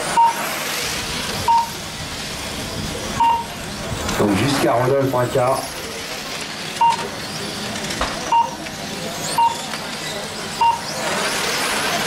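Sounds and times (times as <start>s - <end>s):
electric rc cars whirring: 0.0s - 12.0s
short electronic beeps: 0.1s - 0.4s, 1.5s - 1.8s, 3.2s - 3.5s, 6.8s - 7.1s, 8.3s - 8.6s, 9.3s - 9.7s, 10.6s - 10.9s.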